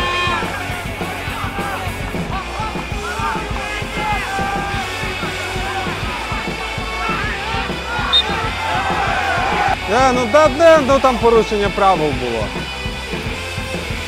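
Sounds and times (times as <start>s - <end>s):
crowd chanting and singing: 0.0s - 10.4s
steady drum beat: 0.0s - 14.0s.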